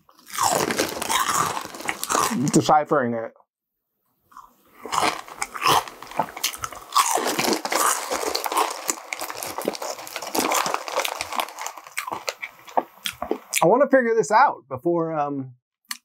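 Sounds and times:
crunchy chip chewing: 0.0 - 2.6, 4.3 - 13.6.

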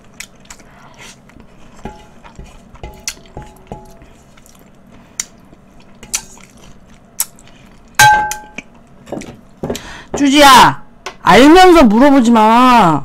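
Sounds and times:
spoon clinking on metal plate: 8.0 - 8.6.

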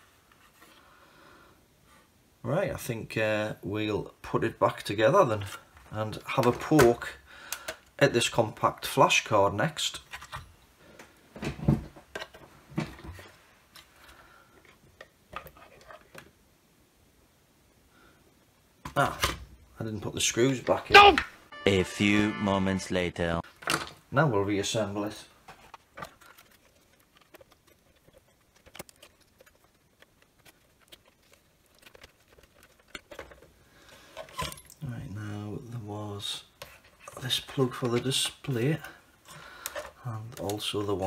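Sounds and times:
wiring rustling: 23.5 - 41.0.

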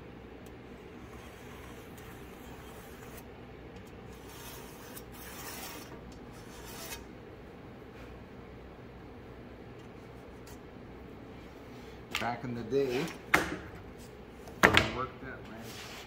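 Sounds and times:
low shop hum: 0.0 - 16.0
hand rubbing on countertop: 15.6 - 16.0.

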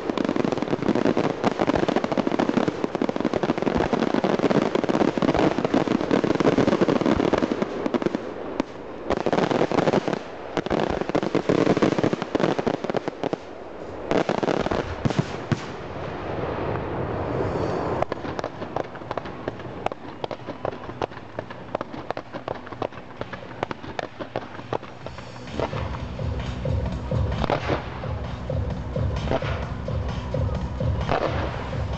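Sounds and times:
sharp crackling pops: 0.0 - 15.8, 18.0 - 25.9
fireworks booming and crackling: 0.0 - 31.9.

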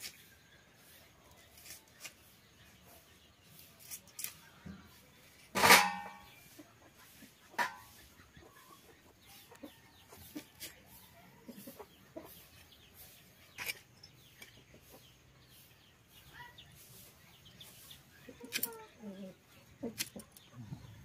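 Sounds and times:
chickens clucking faintly: 0.0 - 21.0.

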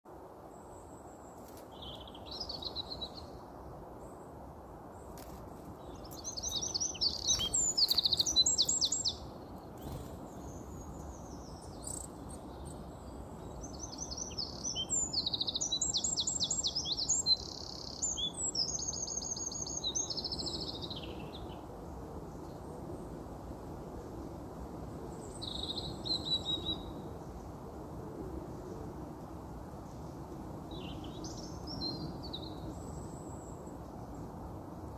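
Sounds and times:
low background noise: 0.1 - 34.9
songbird trilling: 6.0 - 9.2.

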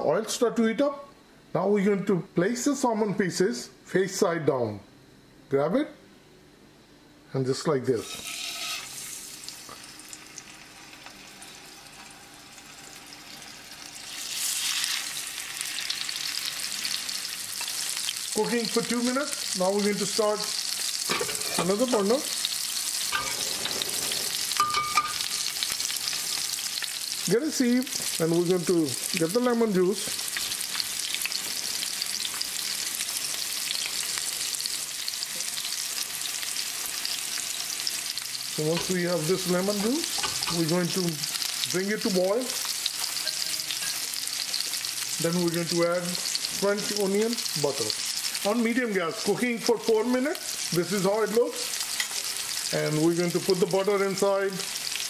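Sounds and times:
fish sizzling in a frying pan: 8.0 - 55.0.

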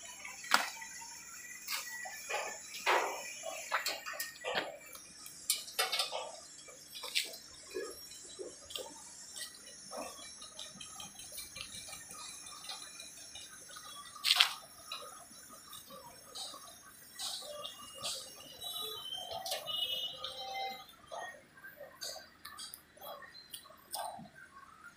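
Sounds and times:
metal parts clicking and tapping: 1.7 - 18.4.

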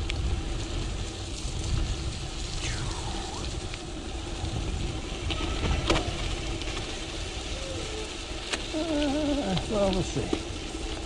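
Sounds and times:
wind on microphone: 0.0 - 9.7
bike tyres rumbling on dirt: 0.0 - 11.0
bike clicks and knocks: 8.4 - 11.0.

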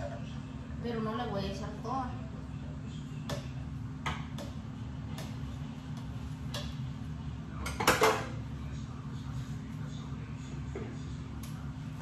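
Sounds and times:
steady low hum: 0.0 - 12.0
utensils clinking against dishes: 7.6 - 8.4.

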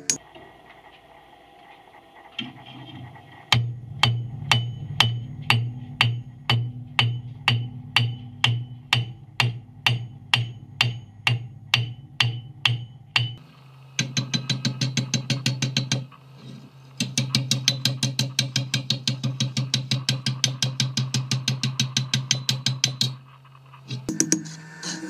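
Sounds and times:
hammer ringing on anvil: 3.6 - 13.4.

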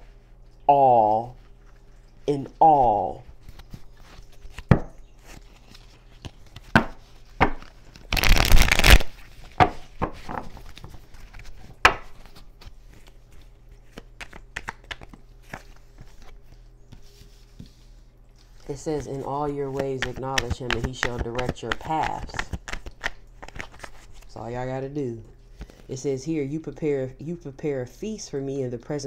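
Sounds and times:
cards rustling: 3.3 - 24.5
cards tapping and clicking: 5.6 - 12.3, 13.9 - 16.3, 19.6 - 24.0.

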